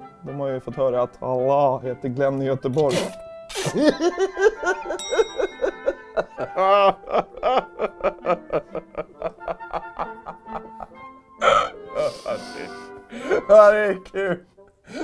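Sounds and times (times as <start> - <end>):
light background music: 0.0 - 15.0
man laughing: 3.6 - 14.4.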